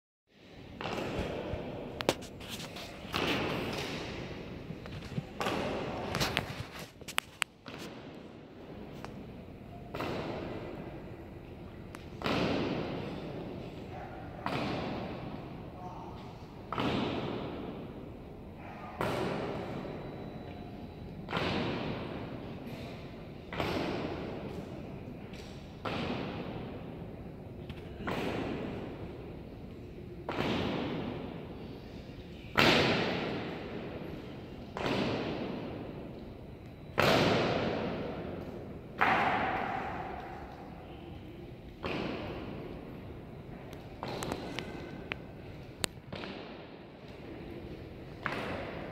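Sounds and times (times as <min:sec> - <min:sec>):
sharp echoing strikes: 0:36.9 - 0:42.8
sharp strikes on a hard floor: 0:39.0 - 0:40.6.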